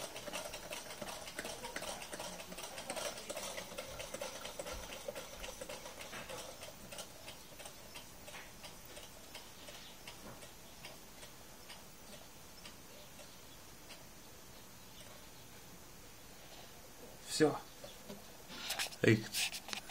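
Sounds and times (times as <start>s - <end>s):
stirling engine mechanism ticking: 0.0s - 14.1s.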